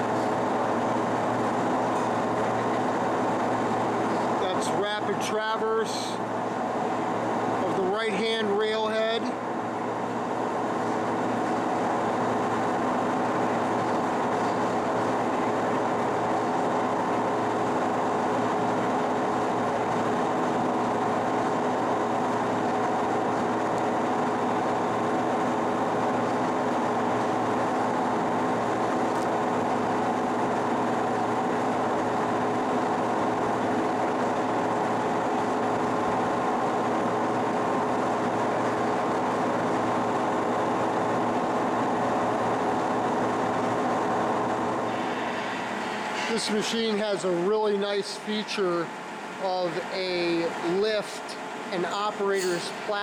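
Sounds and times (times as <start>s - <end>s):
lathe machine whining and humming: 0.0s - 53.0s.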